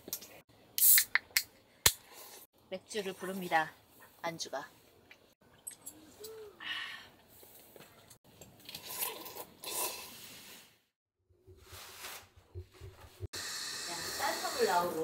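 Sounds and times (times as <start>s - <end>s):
short rustling and scraping: 11.6s - 13.2s.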